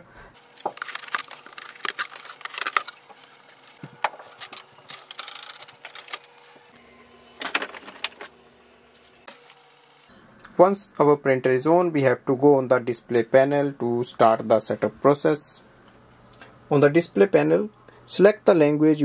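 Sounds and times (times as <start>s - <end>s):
packing tape peeling: 0.4s - 6.5s.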